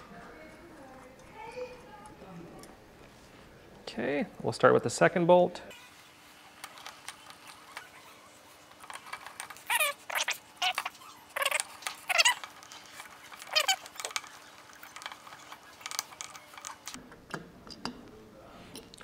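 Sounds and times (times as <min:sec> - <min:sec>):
bolt squeaking in threads: 0:06.7 - 0:17.0.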